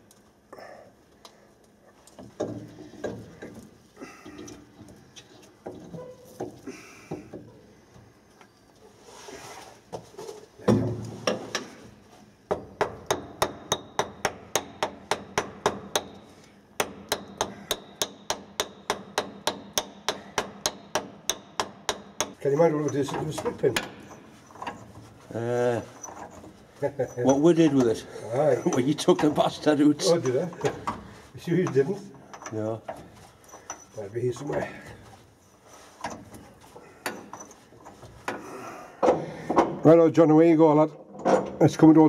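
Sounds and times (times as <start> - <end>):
metal clunks and knocks: 2.2 - 3.7, 10.6 - 11.8, 16.8 - 25.0, 27.2 - 33.8, 36.0 - 39.9, 41.0 - 41.6.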